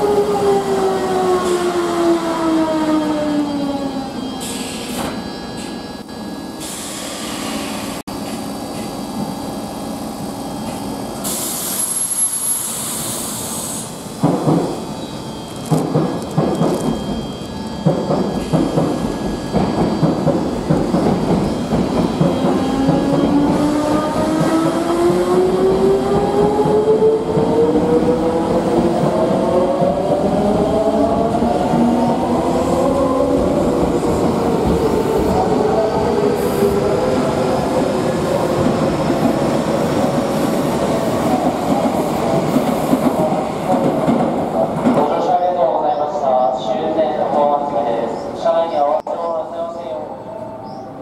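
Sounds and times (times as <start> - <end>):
electric train rolling: 0.0 - 45.3
wheels rumbling on rail: 14.1 - 45.1.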